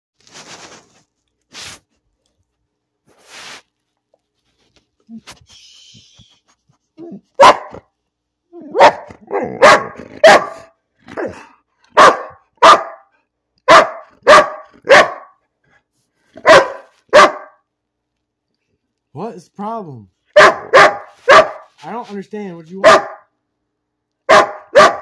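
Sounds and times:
dog barking: 0:07.1 - 0:07.9, 0:08.6 - 0:15.4, 0:16.4 - 0:17.7, 0:20.3 - 0:21.7, 0:22.8 - 0:23.3, 0:24.2 - 0:25.0.

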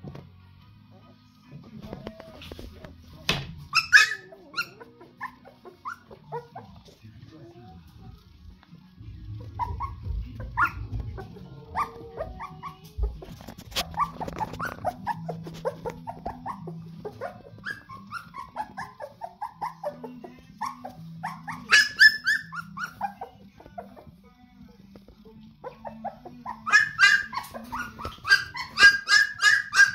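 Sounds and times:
puppies whimpering and squeaking: 0:00.9 - 0:07.6, 0:09.0 - 0:29.9
puppies yelping: 0:03.7 - 0:06.9, 0:09.4 - 0:24.1, 0:25.6 - 0:29.9.

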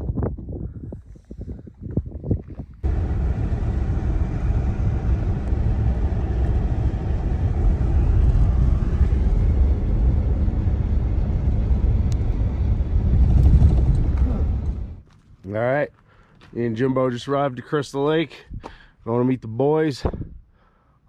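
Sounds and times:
truck engine and tyres rumbling: 0:02.3 - 0:16.8.

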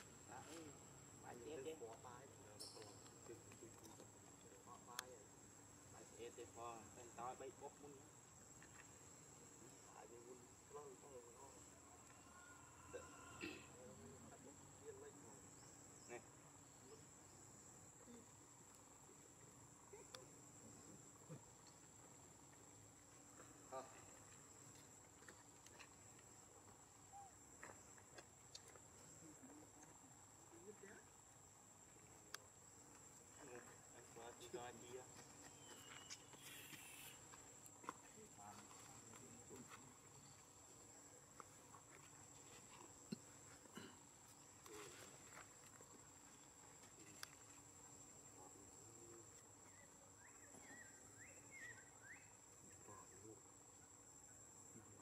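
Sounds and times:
insect drone: 0:00.0 - 0:55.0
soft chirps: 0:02.5 - 0:03.4, 0:35.4 - 0:37.4.

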